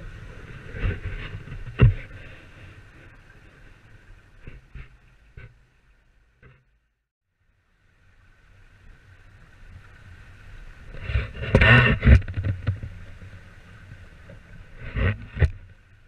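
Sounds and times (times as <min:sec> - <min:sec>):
wind rumble on microphone: 0:00.0 - 0:06.6, 0:07.8 - 0:16.0.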